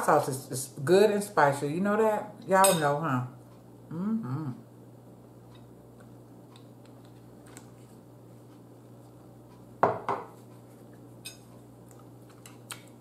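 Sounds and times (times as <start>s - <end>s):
faint room hum: 0.0s - 13.0s
glass bottle knocking on table: 9.8s - 10.3s.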